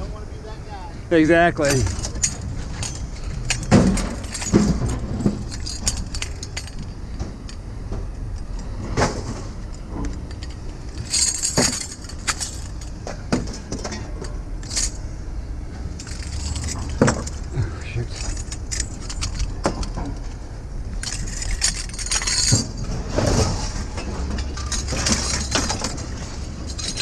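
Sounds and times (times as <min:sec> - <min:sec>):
steady low rumble: 0:00.0 - 0:27.0
sharp metal clanks: 0:01.6 - 0:07.6
metal clinking and jangling: 0:01.6 - 0:15.2, 0:15.9 - 0:27.0.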